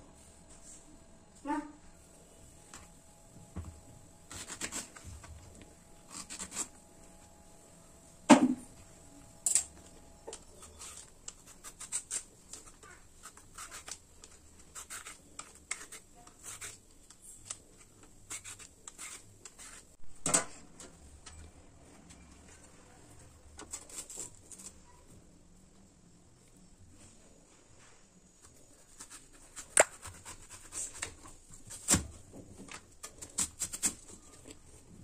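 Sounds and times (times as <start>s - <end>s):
peeler scraping skin: 6.1s - 6.7s, 10.5s - 19.8s.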